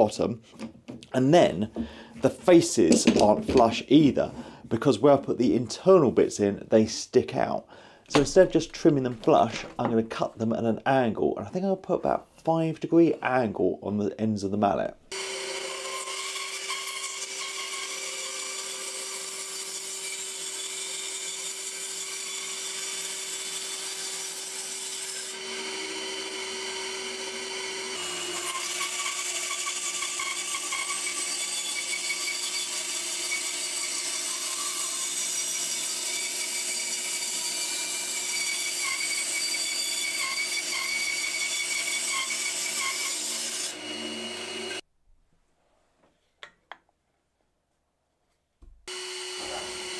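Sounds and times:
bandsaw cutting wood: 0:15.1 - 0:44.8, 0:48.9 - 0:49.9.

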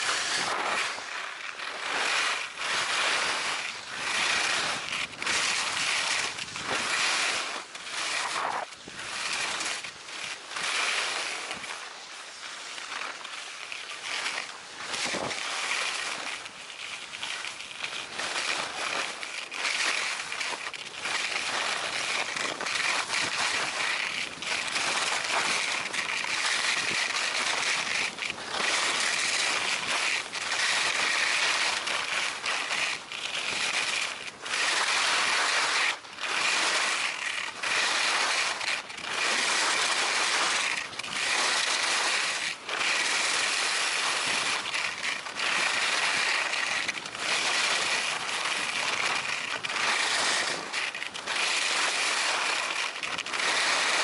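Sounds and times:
skis scraping on snow: 0:00.0 - 0:54.0.

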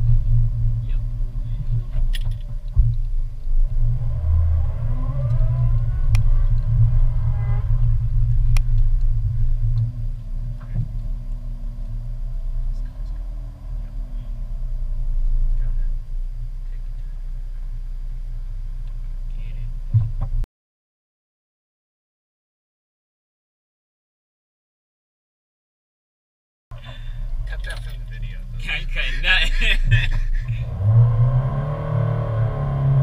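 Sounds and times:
car engine and road rumble: 0:00.0 - 0:20.5, 0:26.7 - 0:33.0.

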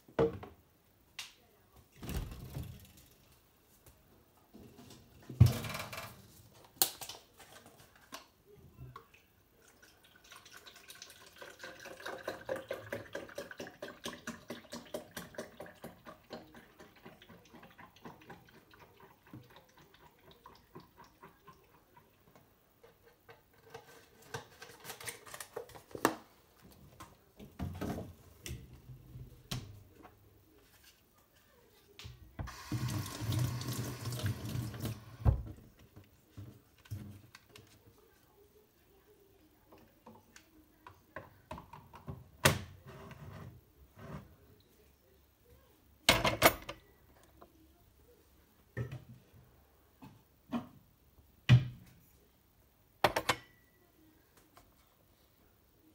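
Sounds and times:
water trickling and dripping: 0:09.0 - 0:22.3, 0:32.5 - 0:35.2.

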